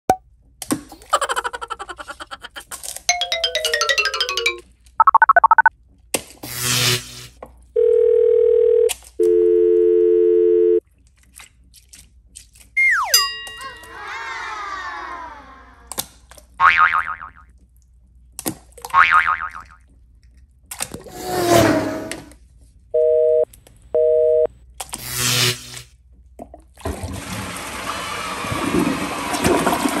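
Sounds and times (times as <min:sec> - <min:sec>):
electronic beeps: 0:05.0 - 0:05.7
telephone dial tone: 0:07.8 - 0:10.8
brief whoosh: 0:21.1 - 0:22.3
toilet flushing: 0:26.8 - 0:30.0.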